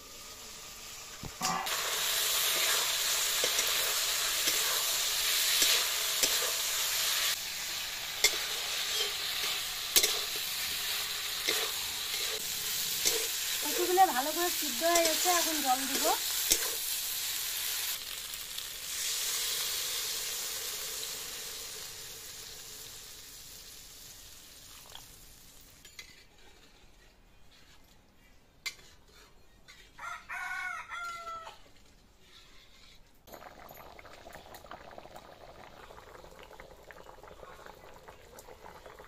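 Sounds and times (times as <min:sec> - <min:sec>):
water sizzling in hot oil: 0:00.0 - 0:26.1, 0:33.4 - 0:39.0
rooster crowing: 0:30.0 - 0:31.6
curry simmering: 0:33.4 - 0:39.0.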